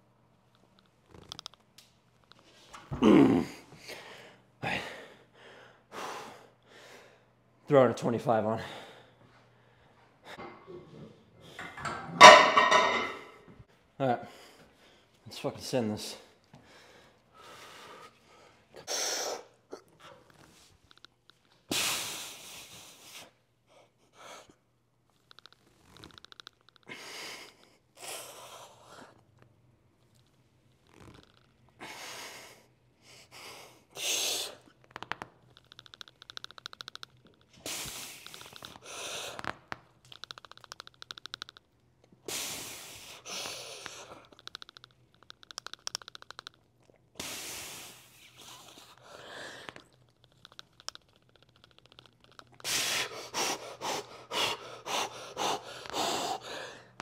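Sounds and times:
man breathing forcefully: 52.6 - 57.0.

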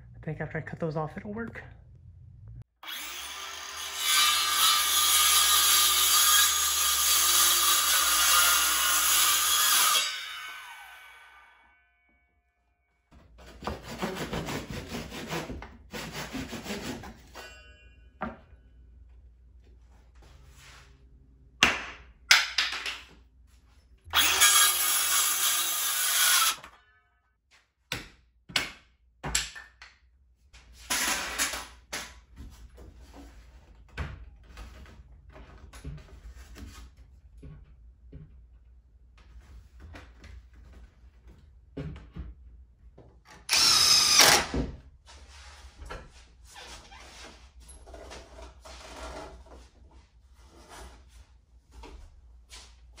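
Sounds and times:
circular saw cutting wood: 2.8 - 11.8, 24.1 - 26.7, 43.5 - 44.5.

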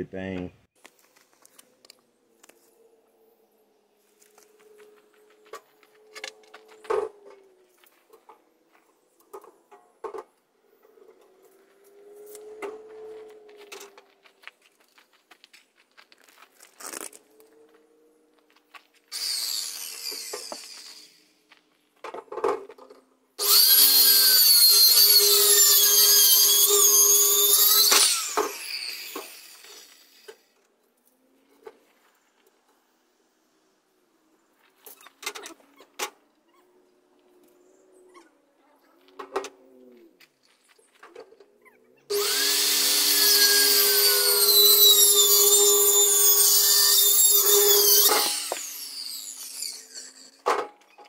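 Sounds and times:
power saw cutting wood: 10.9 - 14.1, 19.1 - 21.4, 23.4 - 30.6, 42.1 - 51.0.

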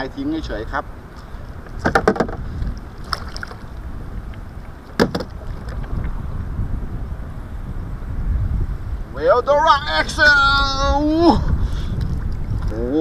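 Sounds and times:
wind rumbling on microphone: 0.0 - 13.0
sharp knocks in a kayak: 1.8 - 2.4, 4.9 - 5.9.

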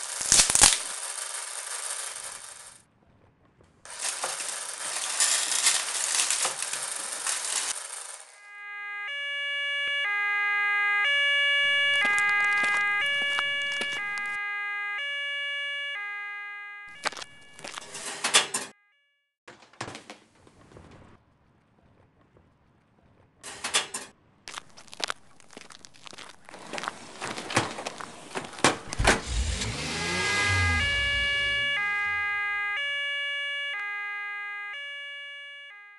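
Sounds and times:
two-tone siren: 8.3 - 19.4, 29.0 - 35.9
sharp crunches and clicks: 11.8 - 14.4, 16.9 - 18.0, 23.8 - 32.2
vehicle rumble: 20.5 - 32.8.

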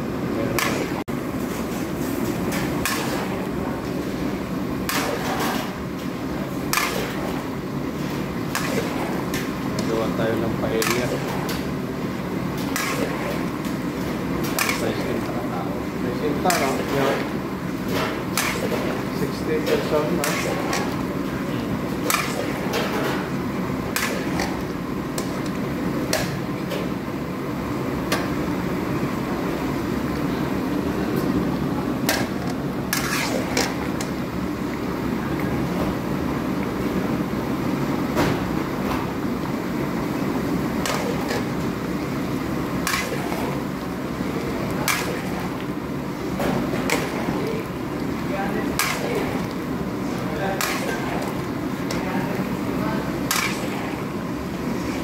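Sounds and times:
sharp spatula clacks: 53.3 - 53.7.

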